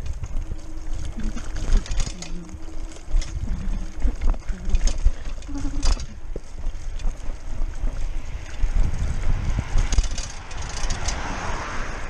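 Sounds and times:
light rattling clicks: 0.0 - 7.2, 9.8 - 11.3
bike rolling noise: 0.0 - 12.0
wind buffeting microphone: 0.0 - 12.0.

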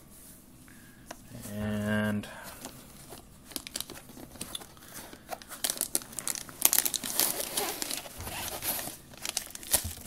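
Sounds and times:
plastic bag crinkling: 3.0 - 10.0.

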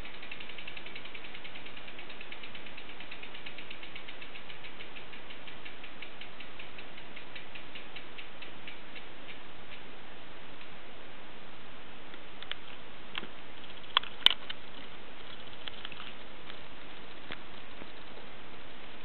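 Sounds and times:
bicycle freehub ticking: 0.0 - 9.9.

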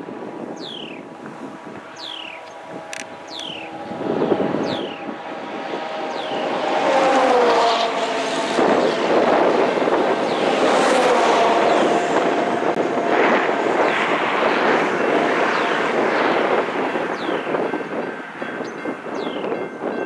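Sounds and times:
railroad crossing bell ringing: 15.0 - 20.0.

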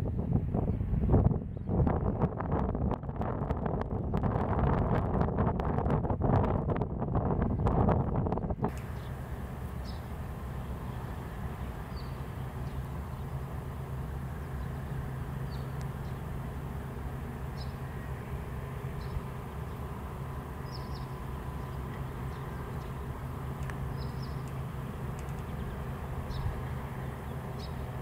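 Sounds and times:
small birds chirping: 8.7 - 28.0.

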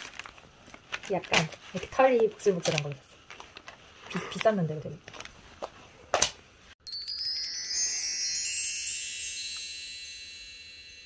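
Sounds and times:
wind chimes ringing: 6.8 - 11.0.

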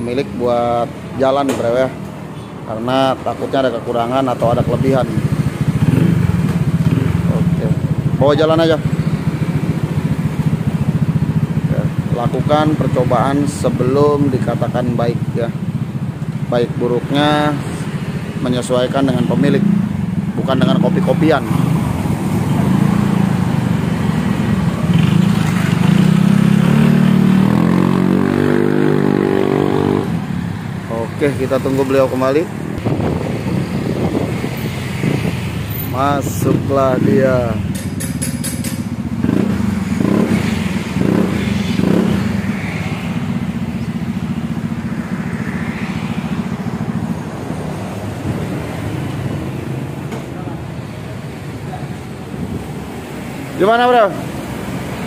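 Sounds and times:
scooter engine revving and idling: 4.0 - 55.0
scooter engine accelerating: 19.6 - 30.6, 37.0 - 49.6.

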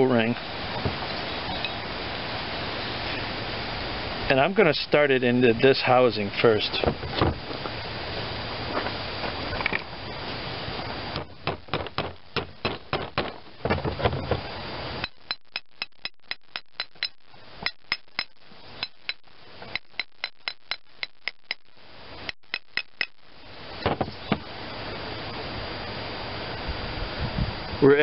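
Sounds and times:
small hammer tapping metal: 15.0 - 21.7, 22.3 - 23.2.

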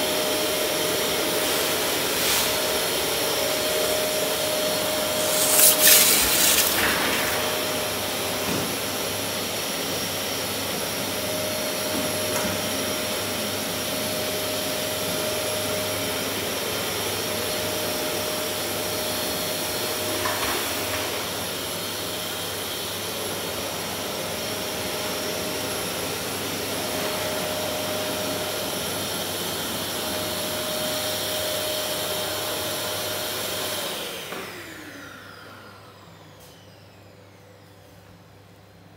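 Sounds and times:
metal peel scraping: 5.0 - 7.5.

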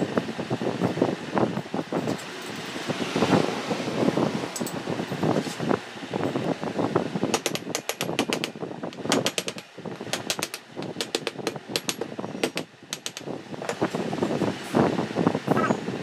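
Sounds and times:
rapid clicking: 7.3 - 13.3.

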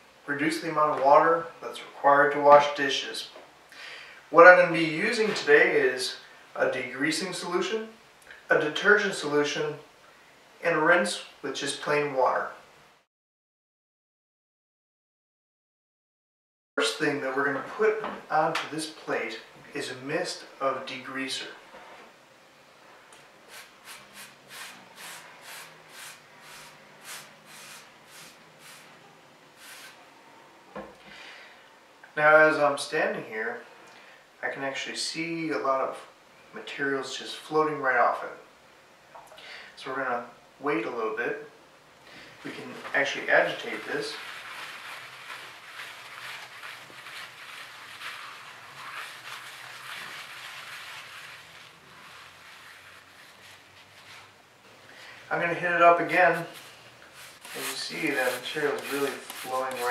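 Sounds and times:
spray bottle hissing squirts: 29.6 - 30.0
cloth scrubbing wet ceramic plate: 43.5 - 54.2, 56.5 - 59.9.

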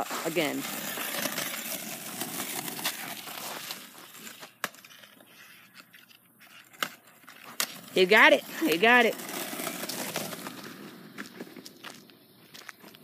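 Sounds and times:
skateboard wheels rolling on asphalt: 0.0 - 13.0.

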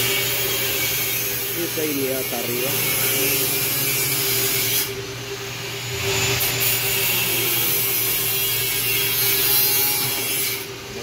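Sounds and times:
loud machine hiss: 0.0 - 10.7.

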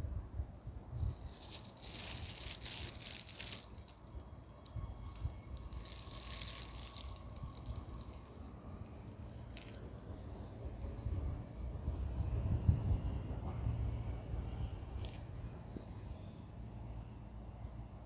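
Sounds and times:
wind on microphone: 0.0 - 2.9, 10.7 - 14.0
rustling hiss and crackles: 0.7 - 10.7.

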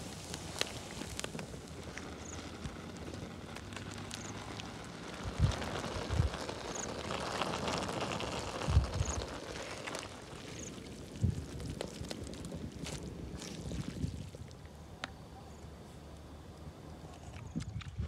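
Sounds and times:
steaming pan hiss: 0.0 - 14.1
wood fire crackling: 0.0 - 17.2.

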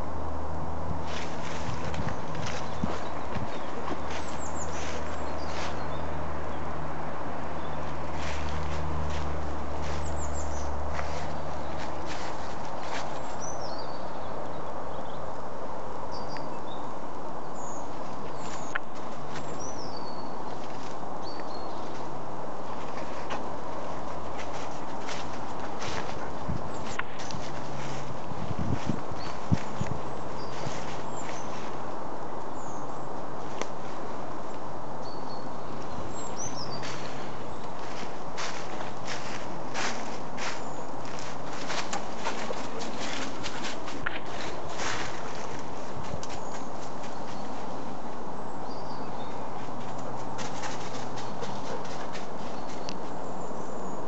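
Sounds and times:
steady background noise: 0.0 - 54.0
steady outdoor hiss: 0.0 - 54.0
footsteps crunching on dry leaves: 0.9 - 6.1, 7.8 - 14.0, 17.9 - 32.0, 35.7 - 48.2, 48.9 - 53.2
twigs snapping: 33.5 - 33.8
small bird chirping: 35.0 - 38.0.

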